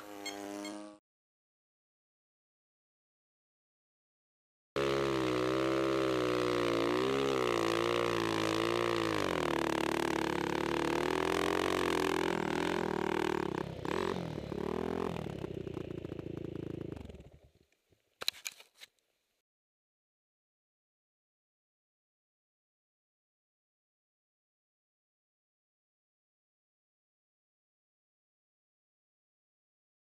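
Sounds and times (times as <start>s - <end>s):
snow bike engine running: 4.8s - 17.5s.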